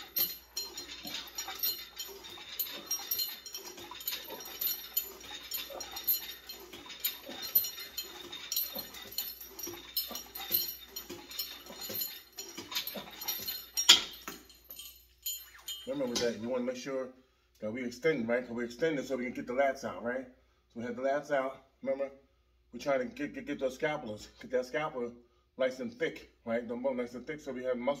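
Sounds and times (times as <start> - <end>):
weight stack clicking: 0.0 - 14.9
chain clinking: 0.0 - 16.4.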